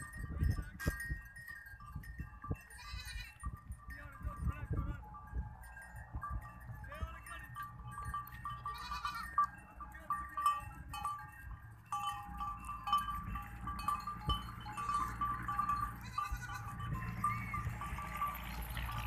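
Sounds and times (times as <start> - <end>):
goats bleating: 2.8 - 3.4, 8.6 - 9.5, 14.7 - 17.6.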